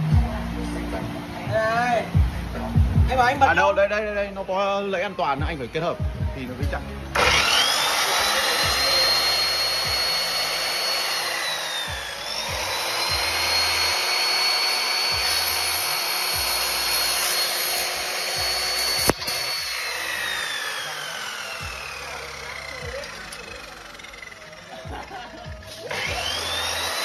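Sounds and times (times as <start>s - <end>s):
mitre saw motor whining: 6.8s - 27.0s.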